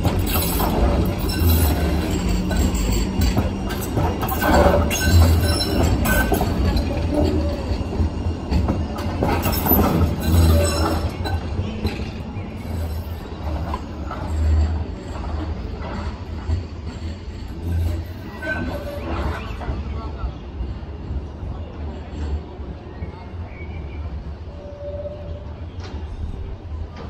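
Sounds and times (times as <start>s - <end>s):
tram wheels rumbling on track: 0.0s - 27.0s.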